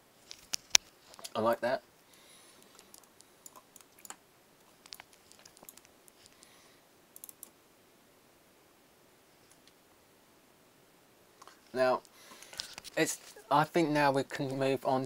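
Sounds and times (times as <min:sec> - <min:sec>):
computer mouse clicks: 0:02.1 - 0:06.4, 0:07.2 - 0:07.6
keyboard clicks: 0:02.1 - 0:06.4, 0:07.2 - 0:07.5.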